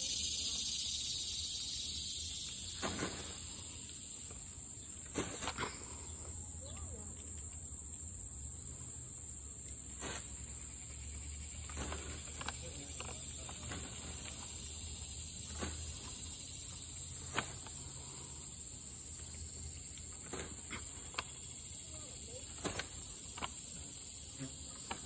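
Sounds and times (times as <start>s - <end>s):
high-pitched insect drone: 0.0s - 5.0s, 5.8s - 20.2s.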